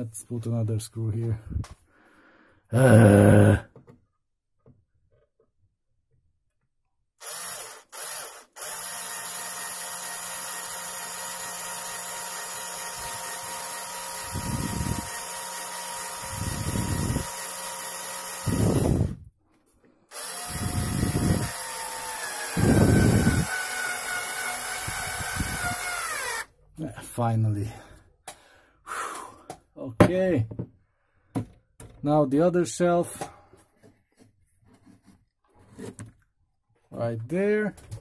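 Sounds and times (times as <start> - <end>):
cordless screwdriver motor: 7.2 - 19.3, 20.1 - 26.5
screw grinding into board: 7.2 - 19.3, 20.1 - 26.5.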